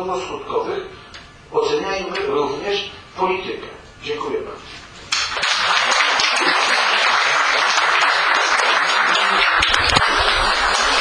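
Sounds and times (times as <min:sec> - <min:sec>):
audience applauding: 0:05.1 - 0:11.0.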